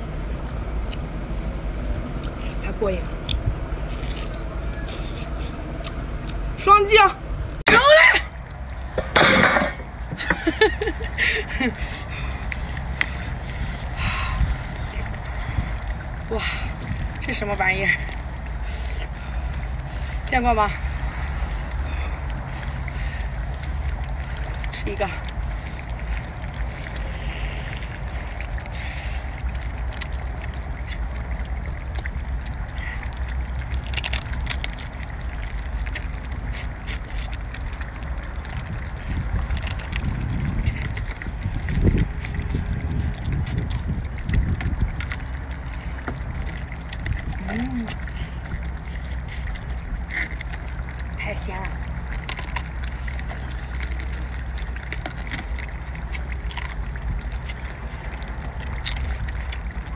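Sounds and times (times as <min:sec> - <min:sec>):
steady low rumble: 0:00.0 - 0:59.9
wind buffeting microphone: 0:00.0 - 0:59.9
crab shell cracking: 0:31.9 - 0:38.7, 0:39.3 - 0:42.4, 0:44.4 - 0:51.1, 0:51.9 - 0:59.8.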